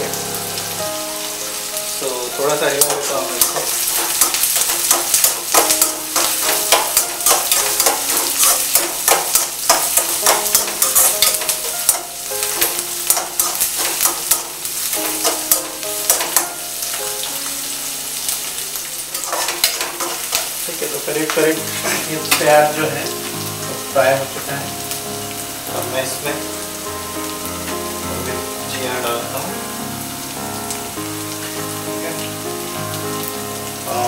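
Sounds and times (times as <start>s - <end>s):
onions sizzling in hot oil: 0.0s - 34.0s
metal spatula scraping and tapping pan: 2.8s - 16.6s, 19.1s - 20.5s.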